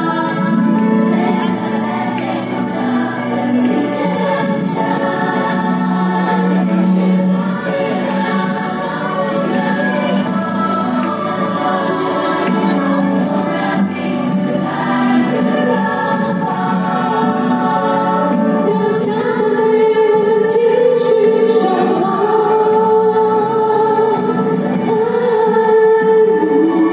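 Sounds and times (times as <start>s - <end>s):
choir singing: 0.0s - 26.9s.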